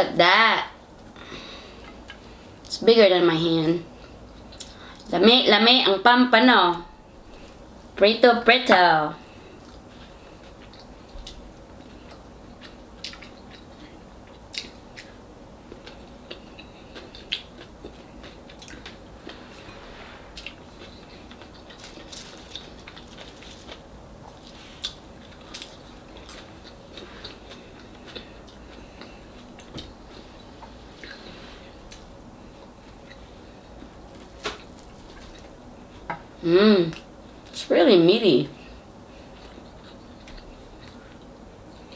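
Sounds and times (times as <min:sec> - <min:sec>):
faint room hum: 0:00.0 - 0:41.9
person chewing: 0:09.5 - 0:35.6, 0:39.2 - 0:41.9.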